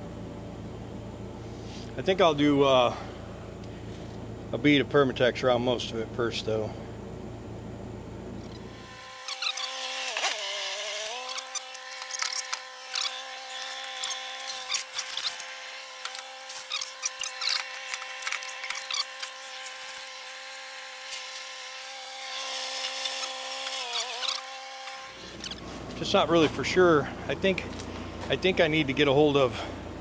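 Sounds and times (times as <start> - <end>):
power tool motor whining: 8.4 - 26.0
clicks and scrapes: 9.2 - 20.2.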